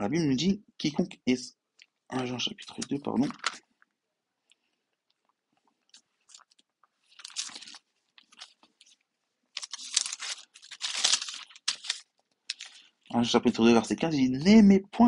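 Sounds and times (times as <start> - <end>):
paper pages rustling: 6.0 - 13.0.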